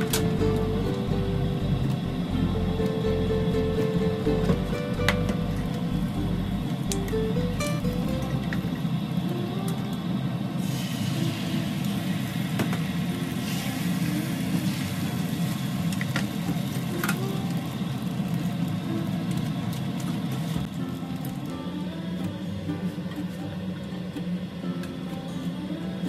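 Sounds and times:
steady low hum: 0.0s - 26.0s
egg sizzling in a pan: 10.5s - 21.6s.

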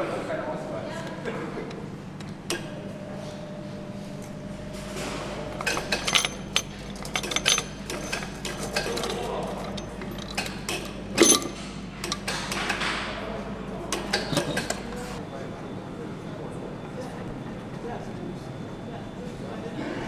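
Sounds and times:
factory hall hum: 0.0s - 20.0s
metal clicks and clinks: 5.6s - 12.4s.

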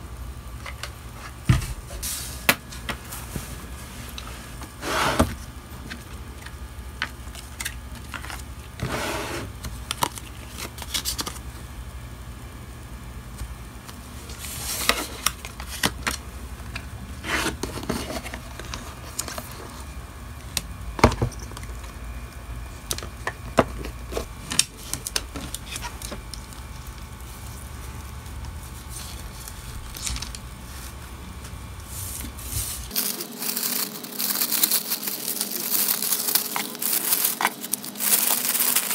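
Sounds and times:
steady low hum: 0.0s - 38.9s
plastic packaging rustling: 2.6s - 8.9s, 9.5s - 11.6s, 22.9s - 38.9s
plastic pouch crinkling: 32.8s - 38.9s.

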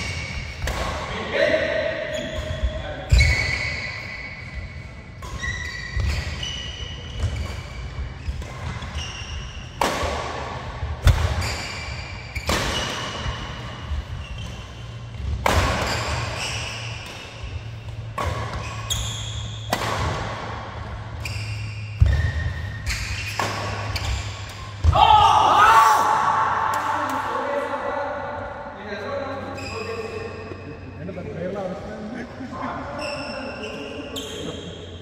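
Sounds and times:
sneakers squeaking on court: 0.0s - 1.1s, 2.0s - 25.0s, 29.4s - 30.9s, 32.9s - 35.0s
rackets hitting shuttlecock: 0.0s - 1.3s, 4.6s - 25.2s.

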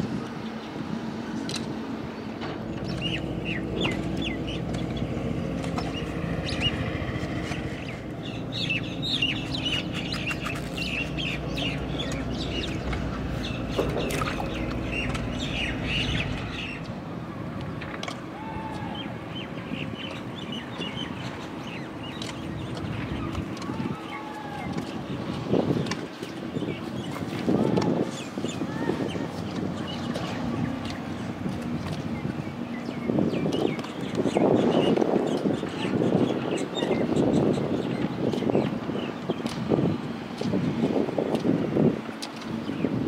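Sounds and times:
small birds chirping: 2.8s - 17.0s, 31.8s - 39.9s.

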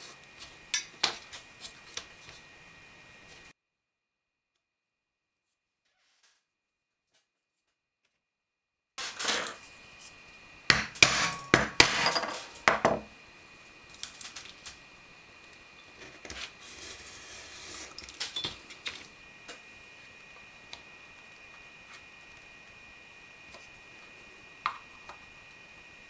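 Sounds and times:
tapping and handling of tools: 10.7s - 13.1s.

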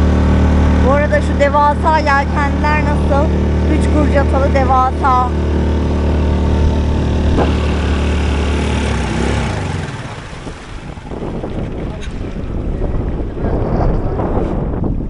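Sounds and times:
outboard motor running: 0.0s - 15.0s
wind: 0.0s - 15.0s
water hissing past hull: 5.3s - 12.5s.

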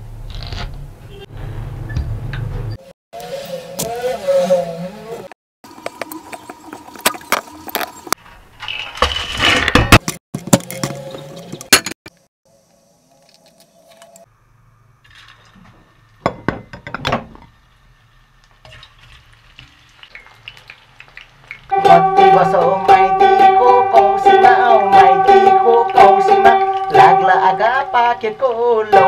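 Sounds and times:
kitchenware clinking: 16.2s - 17.5s.

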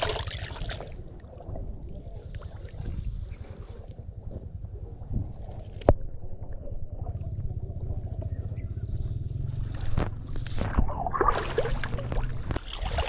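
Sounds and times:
muddy water sloshing and splashing: 0.0s - 3.9s, 9.6s - 13.0s
low rumble: 0.9s - 13.0s.

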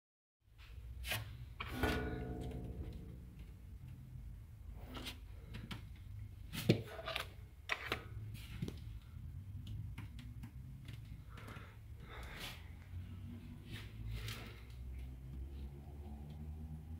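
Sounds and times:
low steady hum: 1.5s - 16.3s
ringing metallic clang: 1.6s - 4.4s.

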